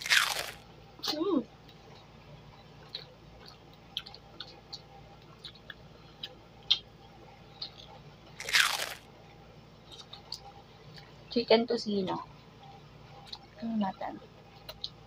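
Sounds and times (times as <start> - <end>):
people chewing food crunching: 0.0 - 9.1, 9.8 - 11.2, 13.1 - 13.6, 14.5 - 15.0.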